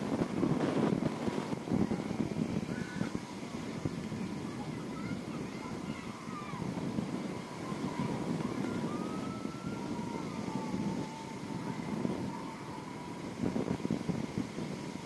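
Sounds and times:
wind buffeting microphone: 0:00.0 - 0:15.0
faint wavering high whine: 0:07.3 - 0:14.2.

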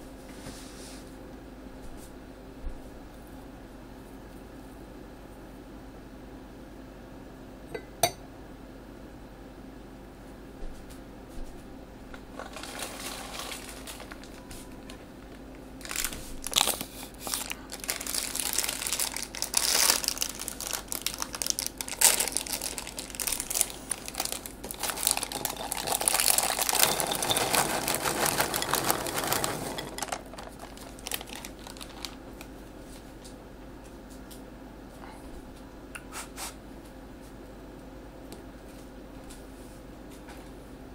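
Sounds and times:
plastic bag crinkling: 0:12.3 - 0:32.6.

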